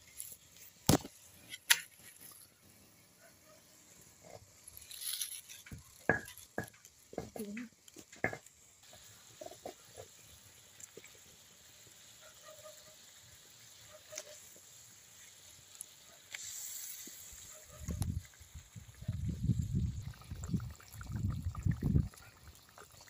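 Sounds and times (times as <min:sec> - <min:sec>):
fish sizzling in hot oil: 0:00.0 - 0:23.0
loud hiss of oil: 0:14.4 - 0:17.7.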